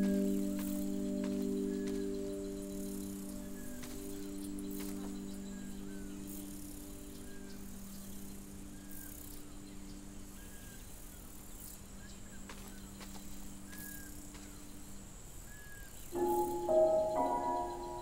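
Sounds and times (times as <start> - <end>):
low drone chord: 0.0 - 8.9, 16.2 - 18.0
faint clicks: 12.4 - 14.6.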